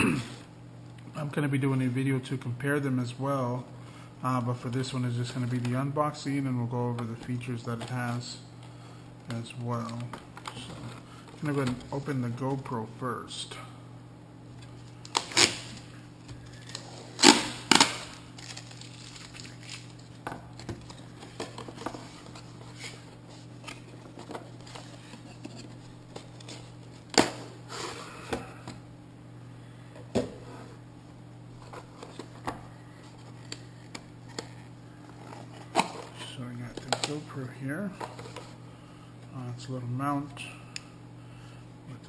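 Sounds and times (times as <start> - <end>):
plastic packaging clicks and crackles: 17.7 - 21.8.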